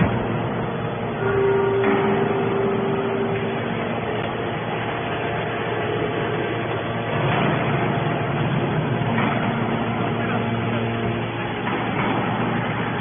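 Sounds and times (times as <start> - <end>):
hydraulic baler running: 0.0 - 13.0.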